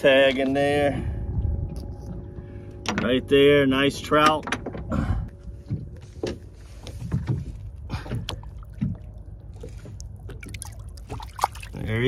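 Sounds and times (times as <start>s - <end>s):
water splashing and sloshing: 3.9s - 12.0s.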